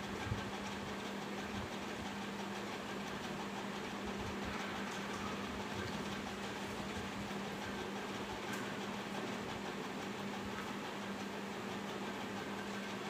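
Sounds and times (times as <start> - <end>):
steady mechanical drone: 0.0 - 13.0.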